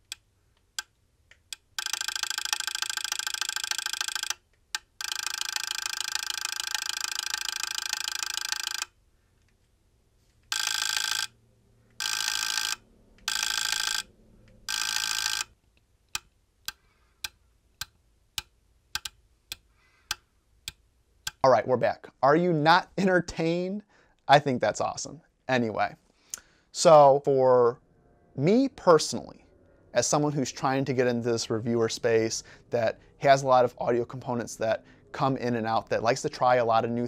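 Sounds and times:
volume control relays clicking: 0:01.4 - 0:08.9.

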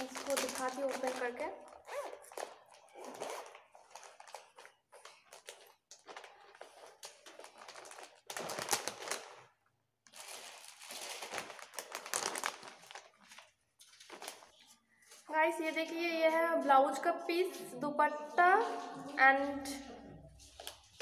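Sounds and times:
plastic packaging crinkling: 0:00.0 - 0:15.2.

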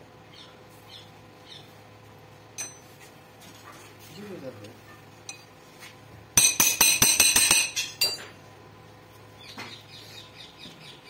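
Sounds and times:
ringing metallic clinks: 0:02.6 - 0:02.9, 0:06.4 - 0:08.3.

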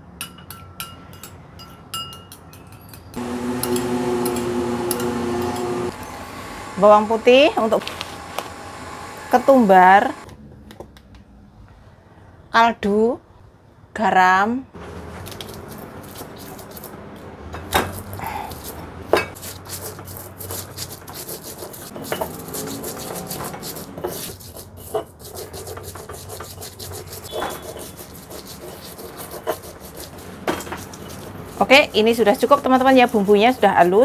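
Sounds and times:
stone pestle grinding in mortar: 0:03.1 - 0:05.9, 0:15.3 - 0:16.9, 0:17.9 - 0:34.0.

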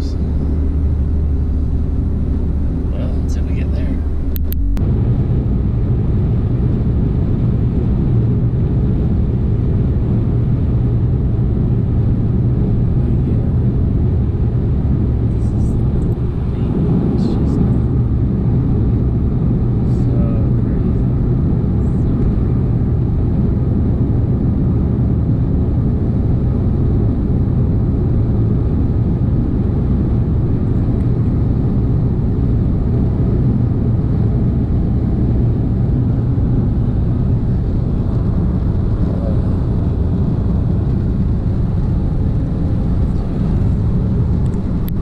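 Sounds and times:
car engine rumble: 0:00.0 - 0:45.0
road noise inside car cabin: 0:00.0 - 0:45.0
wind noise: 0:00.0 - 0:45.0.

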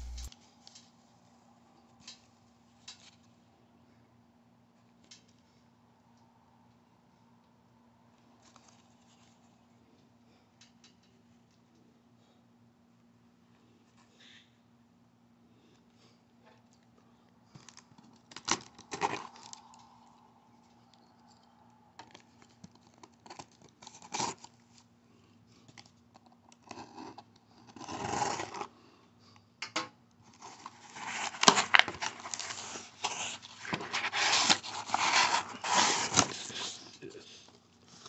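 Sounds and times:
blade slitting packing tape: 0:00.0 - 0:00.3, 0:30.8 - 0:36.7
cardboard flaps scraping and rustling: 0:00.0 - 0:00.3, 0:30.4 - 0:36.9
clicks and short scrapes: 0:00.0 - 0:00.3.

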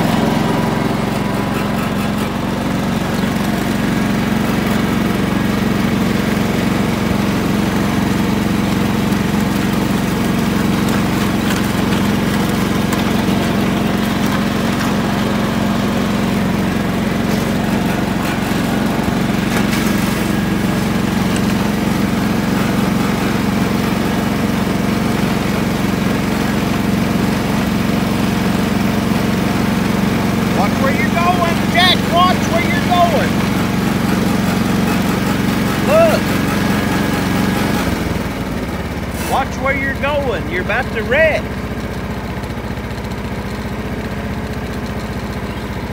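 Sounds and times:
riding lawn mower engine running: 0:00.0 - 0:45.9.

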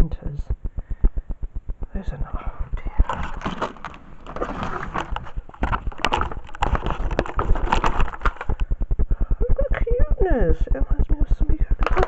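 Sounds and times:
packaging rustling and knocking: 0:02.9 - 0:08.7, 0:11.8 - 0:12.0.

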